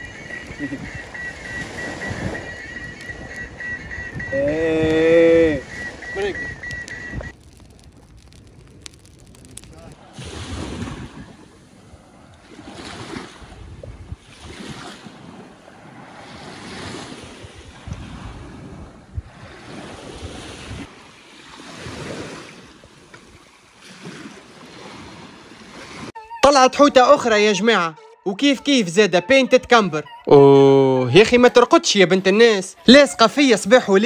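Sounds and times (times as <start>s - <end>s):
wind rumbling on microphone: 0.0s - 21.0s
small waves washing ashore: 5.6s - 26.1s.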